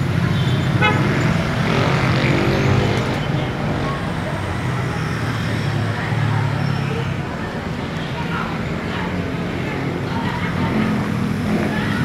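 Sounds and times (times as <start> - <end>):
motorcycle passing: 0.8 - 3.2.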